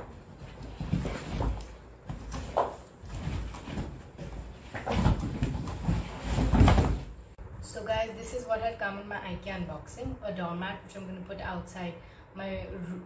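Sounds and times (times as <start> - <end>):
cardboard box rustling: 0.1 - 7.1.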